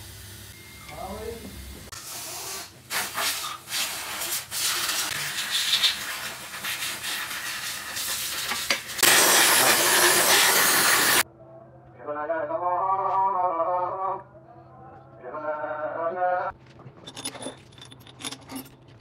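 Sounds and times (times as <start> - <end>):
compressed air hissing: 1.9 - 11.2.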